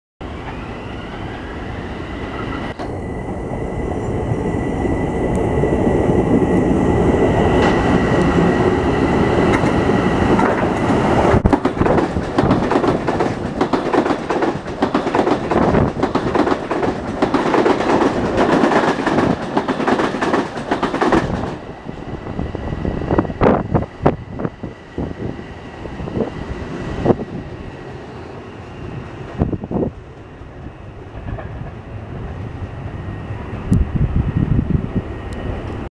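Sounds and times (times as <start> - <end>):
train passing at speed: 0.2 - 35.9
wheels clacking over rail joints: 9.5 - 21.6.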